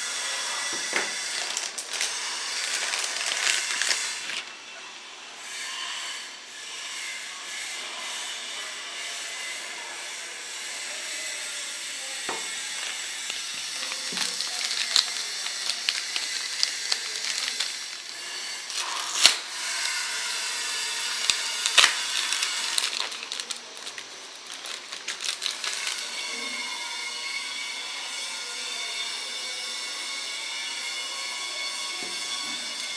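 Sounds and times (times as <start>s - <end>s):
plastic bags crinkling: 1.0s - 4.5s, 12.4s - 26.0s.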